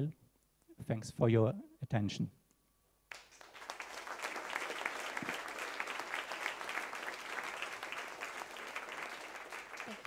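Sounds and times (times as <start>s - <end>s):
audience applauding: 3.1s - 10.0s.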